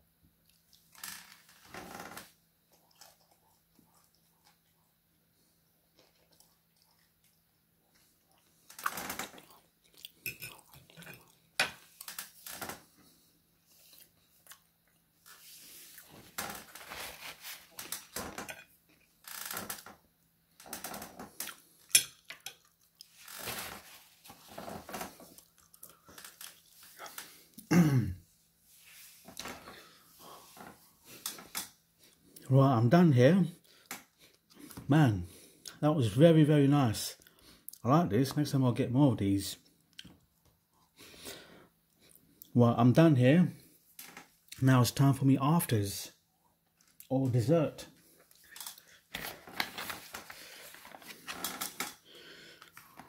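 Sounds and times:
chewing and mouth noises: 2.7s - 5.0s, 5.8s - 8.7s, 9.3s - 11.6s, 25.2s - 27.7s.

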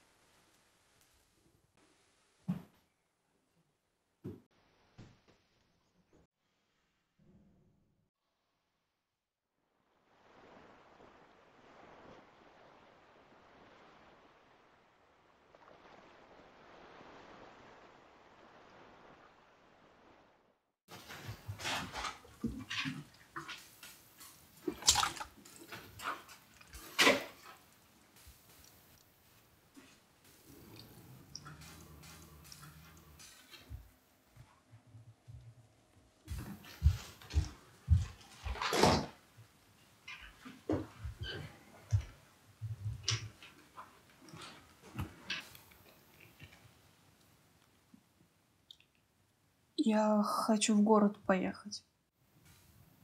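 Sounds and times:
wet squelching of raw flesh: 24.2s - 27.6s.

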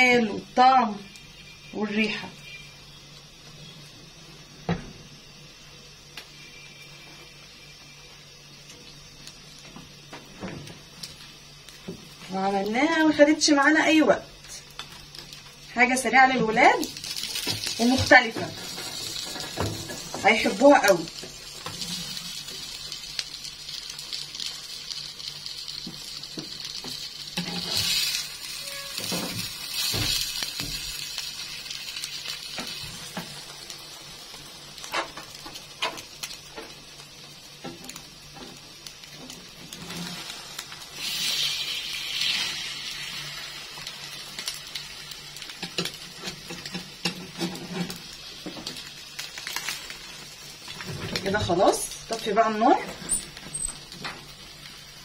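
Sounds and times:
food sizzling in a pan: 0.0s - 55.0s
metal spatula scraping a pan: 47.0s - 48.0s.

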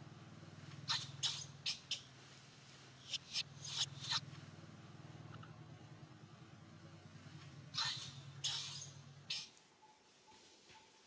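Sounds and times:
infant monkey squeaking: 0.8s - 2.1s, 3.0s - 4.3s, 7.7s - 10.0s.

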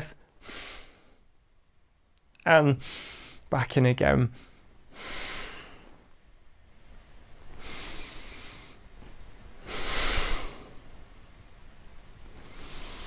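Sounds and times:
man breathing: 0.4s - 1.4s, 2.8s - 3.5s, 4.3s - 6.2s, 7.4s - 10.9s, 12.4s - 13.0s.

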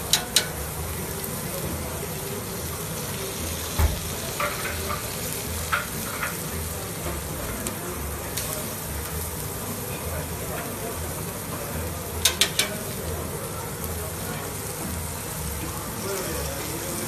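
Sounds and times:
steaks sizzling on grill: 0.0s - 17.0s.

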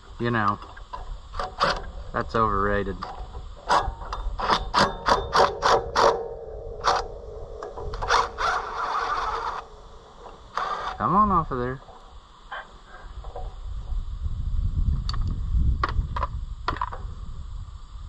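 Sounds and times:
impact driver hammering: 3.7s - 7.1s.

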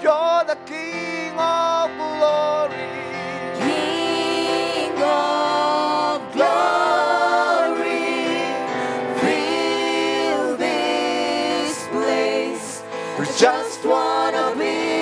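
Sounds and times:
sustained backing: 2.8s - 15.0s
choir singing gospel song: 3.3s - 15.0s.

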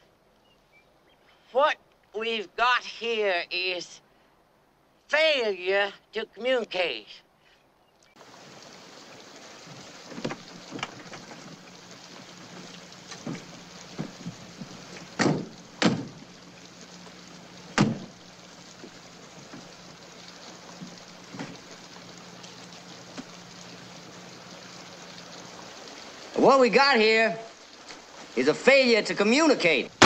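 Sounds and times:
steady hiss: 1.2s - 30.0s
car doors slamming: 13.1s - 16.2s, 17.7s - 18.1s.

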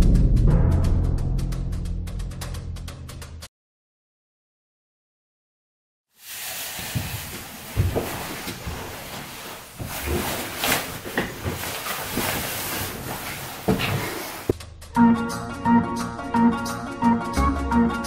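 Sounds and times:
canvas coat rustling: 6.2s - 14.5s
room noise hiss: 6.2s - 14.5s
footsteps: 6.3s - 14.5s
dull thumps: 6.9s - 14.5s.

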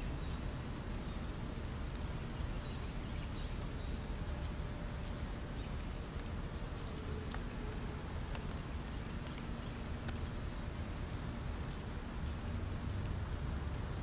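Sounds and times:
small birds chirping: 0.0s - 4.2s
light ticks: 1.7s - 2.3s, 3.4s - 10.4s, 11.1s - 12.4s, 13.0s - 14.0s.

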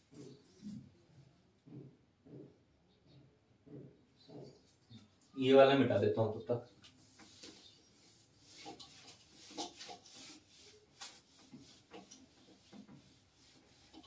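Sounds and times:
cloth rubbing on whiteboard: 7.0s - 14.0s.

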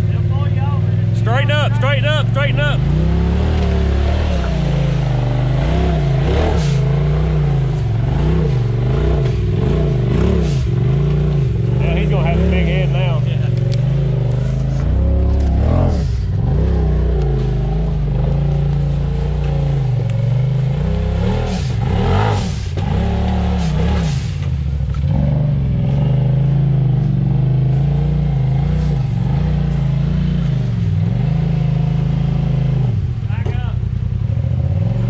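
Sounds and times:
utility vehicle engine revving: 0.0s - 35.0s.

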